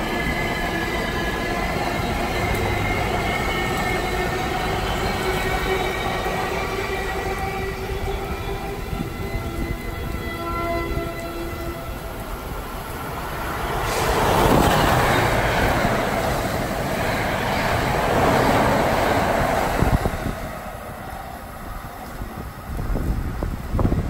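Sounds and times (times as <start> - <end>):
train passing at speed: 0.0 - 24.0
train wheels clicking over rails: 12.0 - 24.0.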